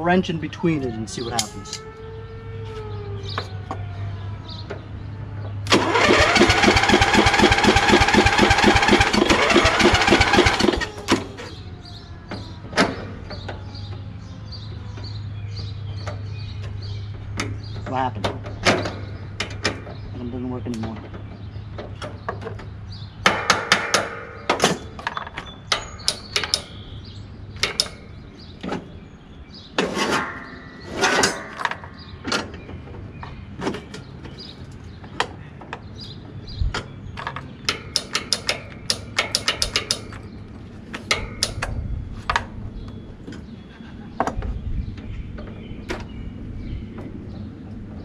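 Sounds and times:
hand tools clanking on metal: 21.9 - 26.8, 27.6 - 28.8, 29.8 - 32.6, 36.8 - 42.4.

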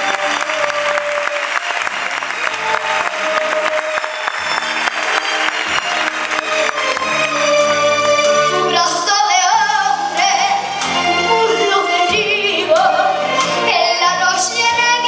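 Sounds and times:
instrumental accompaniment: 0.0 - 15.0
girl singing into microphone: 8.7 - 10.7, 11.3 - 15.0.

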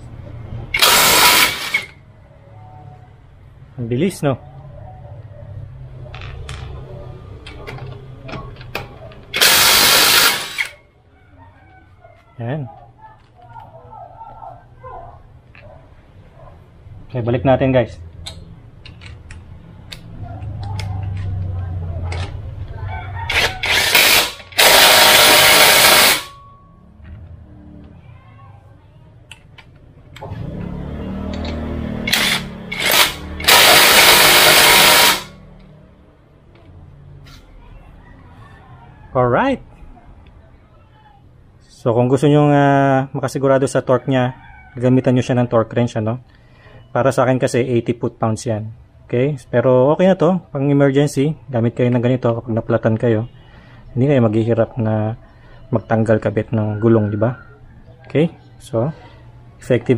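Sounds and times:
impact wrench hammering: 0.7 - 1.9, 9.3 - 10.8, 23.3 - 26.4, 31.4 - 35.4
impact wrench motor whir: 0.7 - 2.0, 9.3 - 10.8, 23.3 - 26.3, 31.4 - 35.4.

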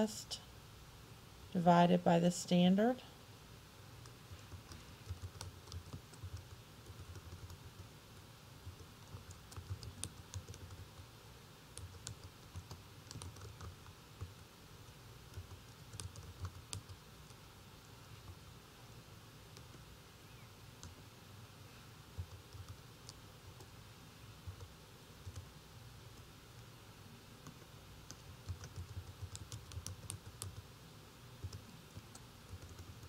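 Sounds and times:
faint keyboard typing: 4.0 - 11.1, 11.7 - 18.5, 19.5 - 19.9, 20.7 - 21.1, 22.1 - 23.8, 24.4 - 26.7, 27.4 - 30.7, 31.3 - 33.0.

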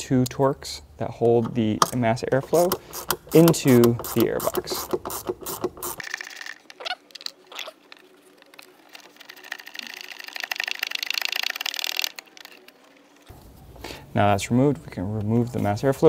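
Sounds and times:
ratchet wrench clicking: 2.6 - 6.6, 9.2 - 12.7.

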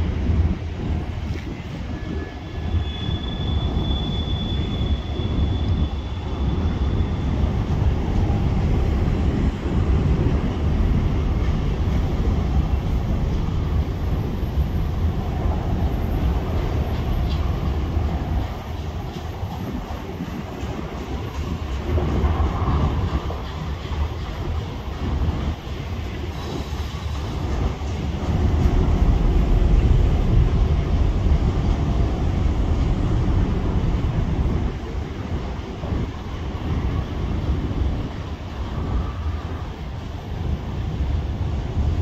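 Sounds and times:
train wheels rumbling on rail: 0.0 - 42.0
high wheel squeal: 1.9 - 7.6.

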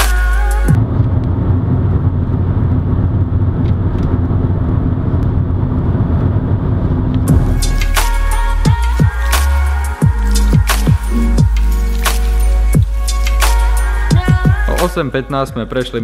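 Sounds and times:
car road and engine noise: 0.7 - 8.0.

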